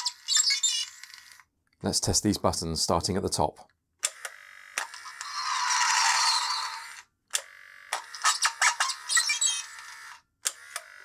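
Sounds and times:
noisy toy sound effect: 4.8 - 7.1, 8.0 - 10.2.

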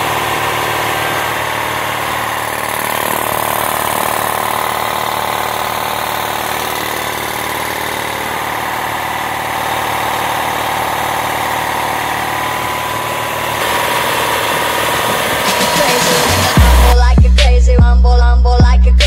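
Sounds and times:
air compressor running: 0.0 - 17.1.

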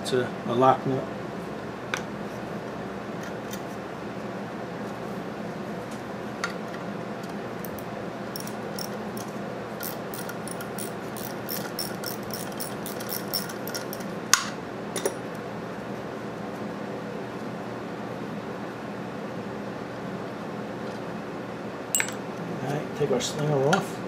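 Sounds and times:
steady hum: 0.0 - 24.0
ratchet wrench clicking: 8.4 - 14.1.

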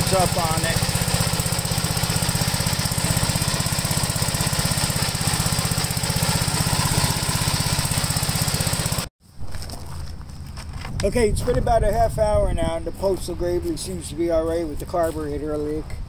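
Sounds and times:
tractor engine running: 0.0 - 9.1.

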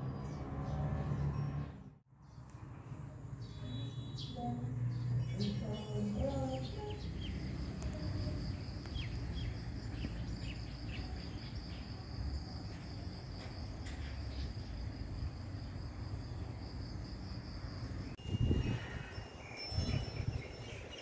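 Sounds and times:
pulsing high-pitched insect trill: 5.3 - 21.0.

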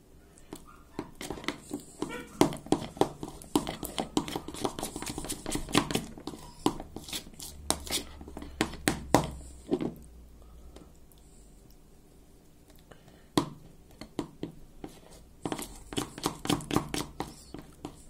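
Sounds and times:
utensil beating mixture in a bowl: 0.4 - 10.1, 13.4 - 18.0.

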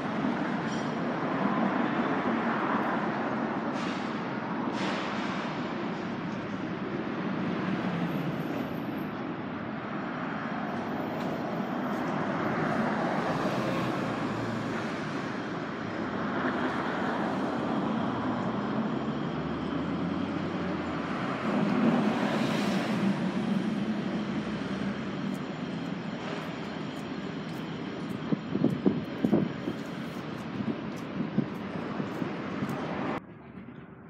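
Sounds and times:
distant vehicles rumble: 0.0 - 34.0.

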